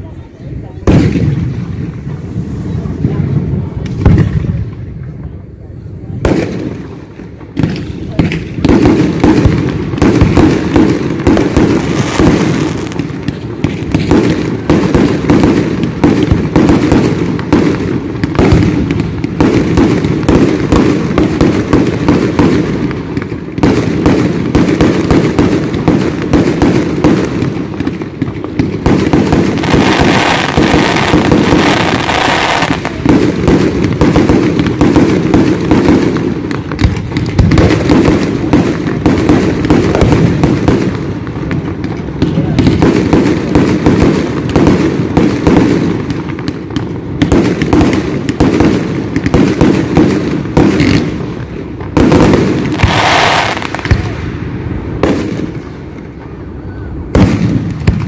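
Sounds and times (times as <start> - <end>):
fireworks bangs and crackles: 0.0 - 58.0.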